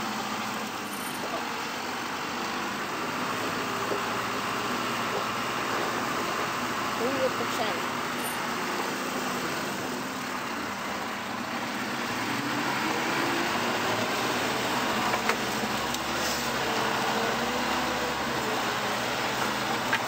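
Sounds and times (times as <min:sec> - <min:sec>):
truck diesel engine under load: 0:00.0 - 0:20.0.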